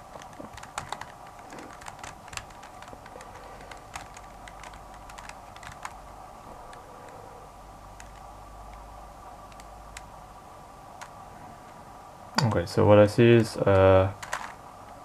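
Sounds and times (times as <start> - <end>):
puzzle cube layers clicking: 0.0 - 6.1
faint steady hum: 0.0 - 15.0.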